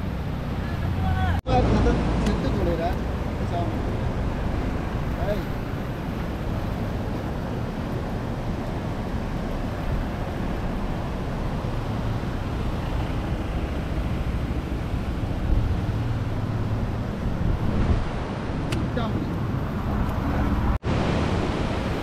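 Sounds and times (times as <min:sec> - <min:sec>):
floodwater rushing: 0:00.0 - 0:22.0.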